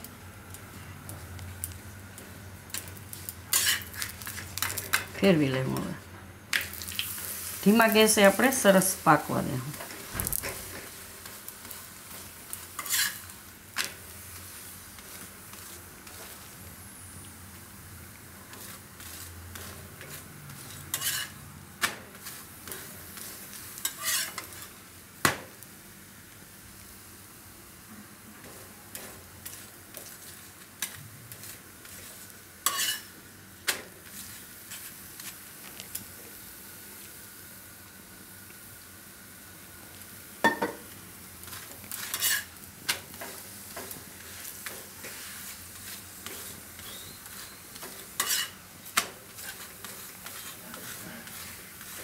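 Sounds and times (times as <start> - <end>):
flatbread sizzling on a griddle: 0.0 - 52.0
metal spatula scraping griddle: 3.5 - 4.1, 11.6 - 13.9, 18.4 - 21.5, 22.1 - 24.7, 28.4 - 33.1, 41.5 - 42.5, 43.2 - 52.0.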